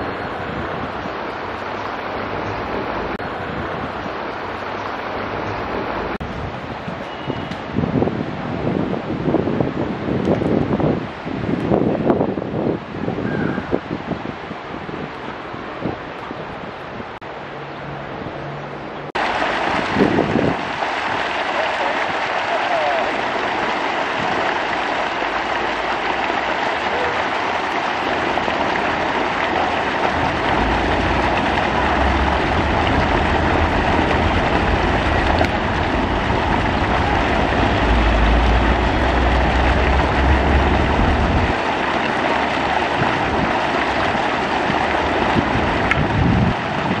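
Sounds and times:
water pouring into pond: 19.2s - 47.0s
low rumble: 28.3s - 41.6s.

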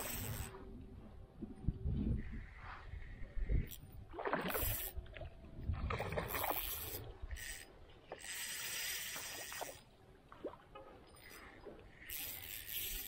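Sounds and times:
water splashing and sloshing: 3.9s - 12.0s.

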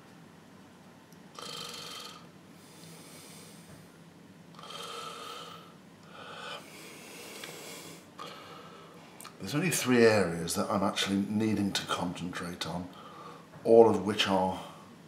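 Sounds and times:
faint room hiss: 0.0s - 15.0s
man breathing: 1.4s - 4.0s, 4.6s - 9.2s, 12.9s - 13.6s.

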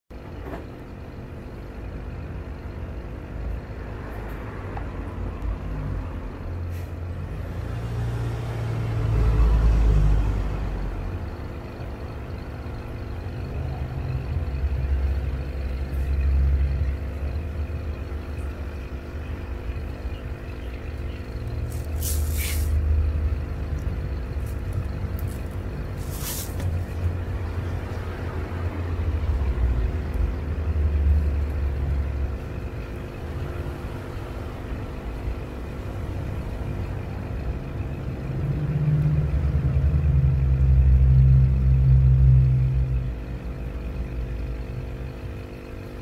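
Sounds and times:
low mechanical hum: 0.1s - 46.0s
brief high hiss: 21.8s - 22.8s.

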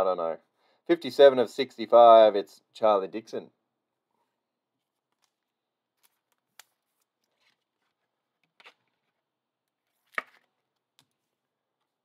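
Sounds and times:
cards clicking and rustling: 5.0s - 11.3s.

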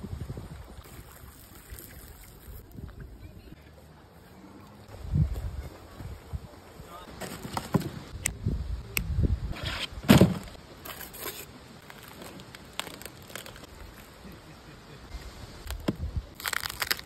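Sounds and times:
crisp skin crackling and tearing: 11.2s - 14.2s, 15.6s - 17.0s.

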